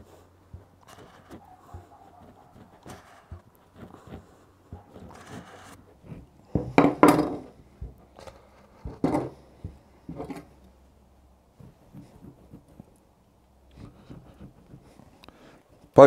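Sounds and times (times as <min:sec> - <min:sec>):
knife sawing through bread crust: 0:00.6 - 0:06.5, 0:13.7 - 0:15.1.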